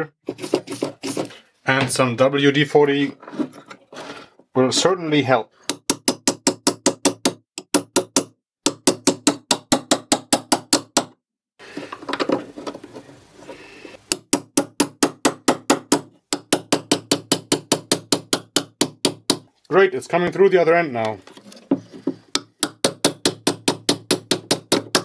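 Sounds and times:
rough handling noise: 0:11.6 - 0:14.1, 0:19.5 - 0:22.4.

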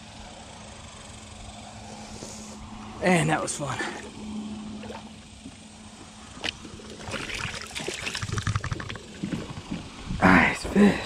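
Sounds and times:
water trickling and splashing: 0:06.3 - 0:10.1.

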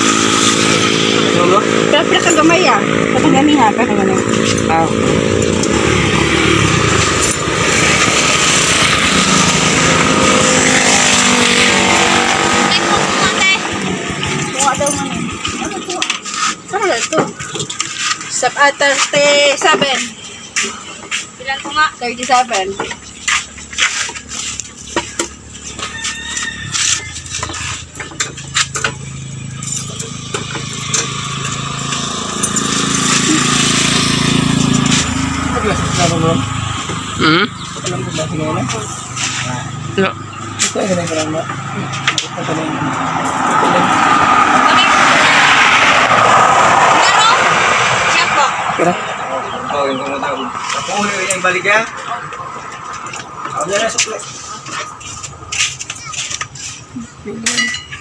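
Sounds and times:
small engine running: 0:00.0 - 0:18.4, 0:22.7 - 0:49.0.

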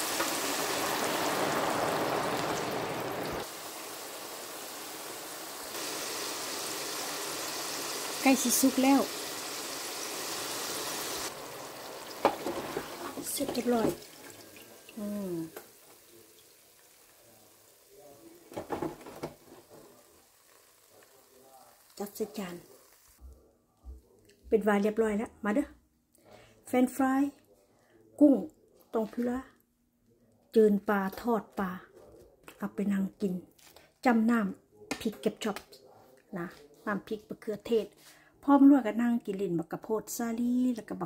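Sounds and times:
fries sizzling in hot oil: 0:00.0 - 0:23.2.

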